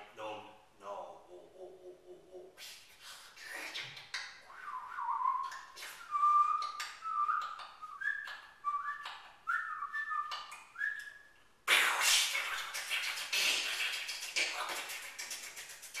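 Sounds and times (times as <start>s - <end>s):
person whistling: 4.5s - 11.3s.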